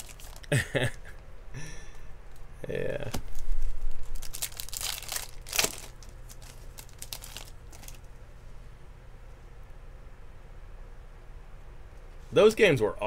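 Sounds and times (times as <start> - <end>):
foil pack tearing and crinkling: 0.0 - 0.6, 3.2 - 8.1.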